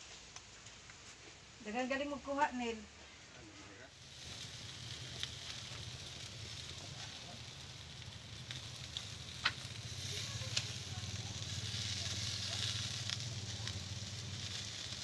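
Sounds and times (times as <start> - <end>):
chicken sizzling on grill: 3.5 - 15.0
fire popping: 3.8 - 15.0.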